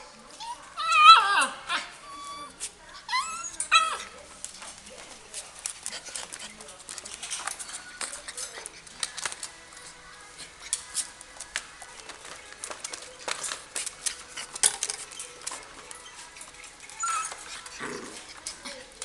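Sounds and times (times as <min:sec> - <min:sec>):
paws rattling wire bars: 0:03.1 - 0:19.0
puppy claws clicking on plastic: 0:05.5 - 0:19.0.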